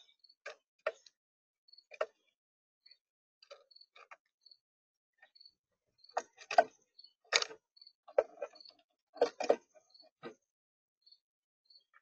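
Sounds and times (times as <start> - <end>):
birds pecking at feeder: 6.1 - 10.4.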